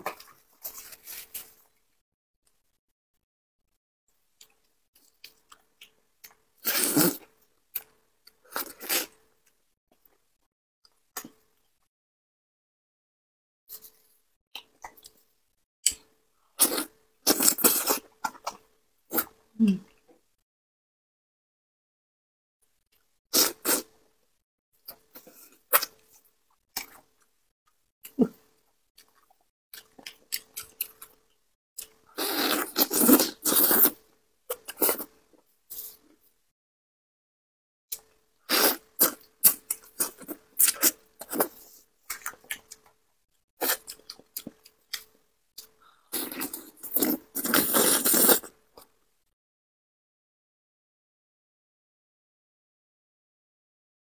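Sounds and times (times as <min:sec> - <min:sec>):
wet sucking and chewing: 0:31.8 - 0:36.0, 0:37.9 - 0:43.0, 0:43.6 - 0:48.9.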